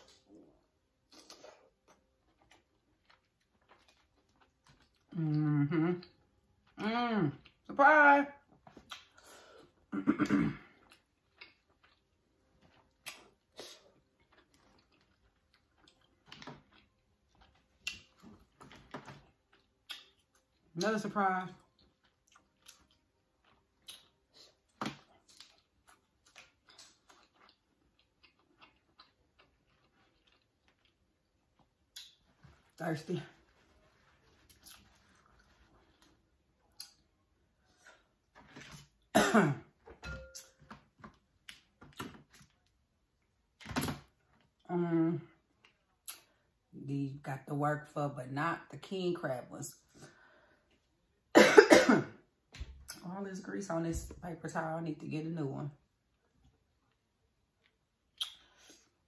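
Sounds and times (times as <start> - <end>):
chewing and mouth sounds: 0.0 - 7.7, 8.6 - 9.8, 10.8 - 20.8, 21.5 - 32.6, 33.9 - 39.0, 56.1 - 58.9.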